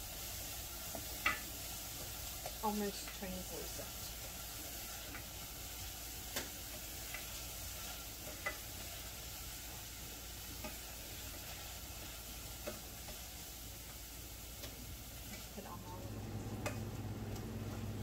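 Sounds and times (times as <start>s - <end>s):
onions sizzling in a frying pan: 0.0s - 18.0s
utensil tapping and scraping pan: 0.9s - 3.2s, 6.3s - 9.0s, 10.4s - 13.4s, 14.6s - 15.6s.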